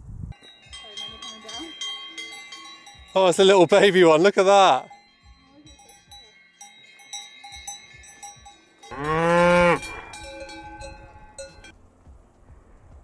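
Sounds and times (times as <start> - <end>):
cowbells clanking and ringing: 0.4 - 11.8
cow mooing loudly: 8.9 - 10.5.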